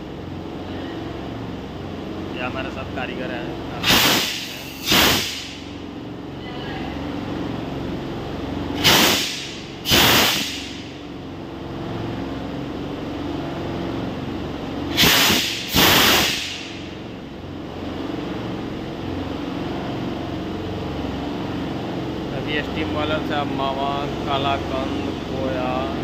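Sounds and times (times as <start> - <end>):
steam hissing from taps: 3.8 - 5.5, 8.8 - 10.7, 14.9 - 16.6
steam plant humming: 8.7 - 11.0, 14.9 - 17.0.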